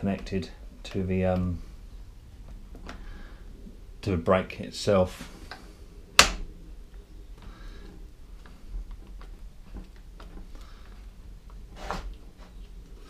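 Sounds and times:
faint knocks and rattles: 0:05.5 - 0:12.8.

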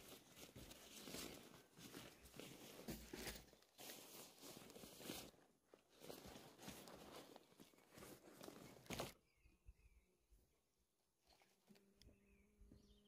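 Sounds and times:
faint rustling and scuffing: 0:00.0 - 0:09.2.

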